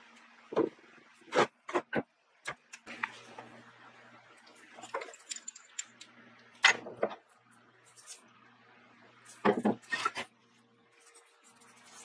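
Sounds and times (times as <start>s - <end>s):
metal parts and tools clicking: 4.8s - 6.8s.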